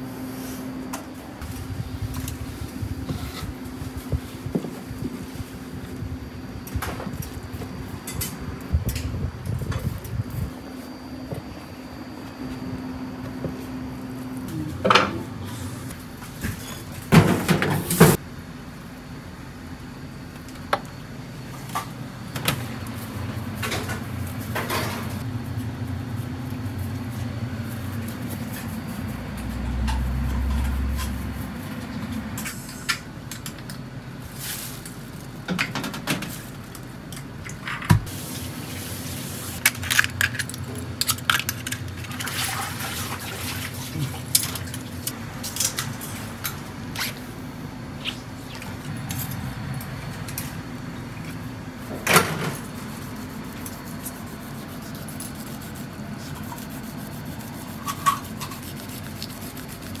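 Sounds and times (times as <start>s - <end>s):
low hum of equipment: 0.0s - 60.0s
water running at a sink: 42.0s - 45.1s.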